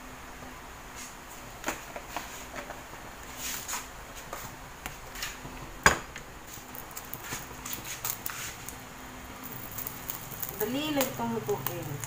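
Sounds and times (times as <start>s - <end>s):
oil spitting in frying pan: 6.4s - 12.0s.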